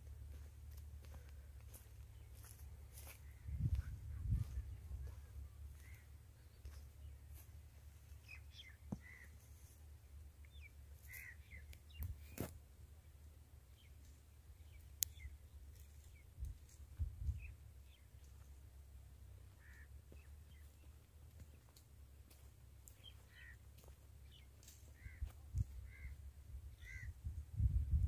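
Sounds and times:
short bird calls: 0:02.2 - 0:06.8, 0:08.2 - 0:09.5, 0:10.5 - 0:12.5, 0:19.5 - 0:20.9, 0:22.8 - 0:27.2
low wind rumble: 0:16.2 - 0:17.9, 0:25.0 - 0:28.0.

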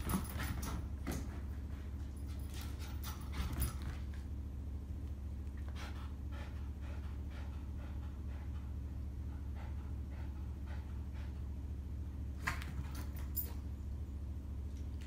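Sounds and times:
steady low hum: 0:00.0 - 0:15.0
dog panting: 0:05.6 - 0:11.7.

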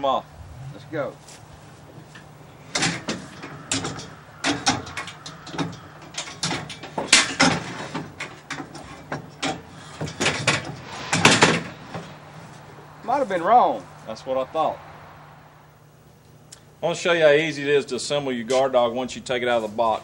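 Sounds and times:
metal ramps clanking and rattling: 0:02.6 - 0:12.4.

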